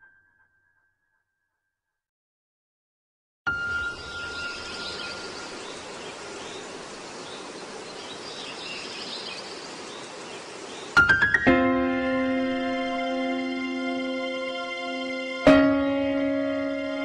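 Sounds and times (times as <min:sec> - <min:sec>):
faint bird chirps: 0:03.5 - 0:11.0
background hiss: 0:03.7 - 0:11.2
plucked notes climbing in pitch: 0:11.5 - 0:17.0.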